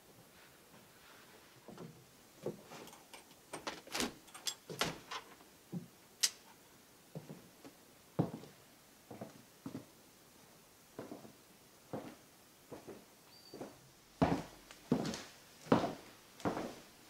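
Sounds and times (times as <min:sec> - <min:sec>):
door creaking: 0:03.5 - 0:05.4.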